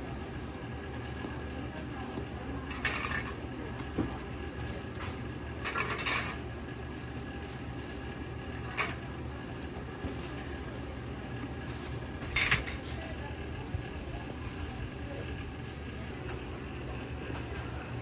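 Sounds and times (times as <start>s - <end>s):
steady low hum: 0.0s - 18.0s
metal presses clattering on griddle: 2.7s - 3.4s, 5.6s - 6.4s, 12.3s - 12.8s.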